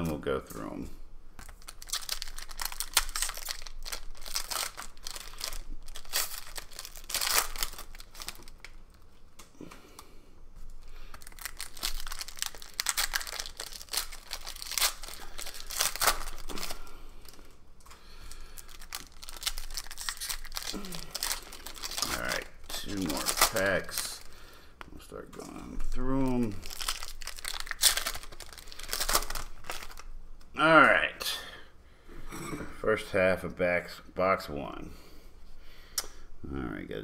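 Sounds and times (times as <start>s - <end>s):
foil wrappers tearing and crinkling: 1.4s - 9.0s, 10.8s - 17.5s, 18.2s - 24.4s, 25.8s - 30.1s.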